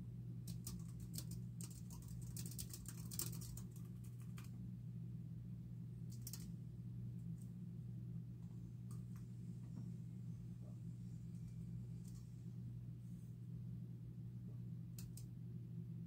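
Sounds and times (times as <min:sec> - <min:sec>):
low hum: 0:00.0 - 0:16.0
keyboard typing: 0:00.5 - 0:04.5.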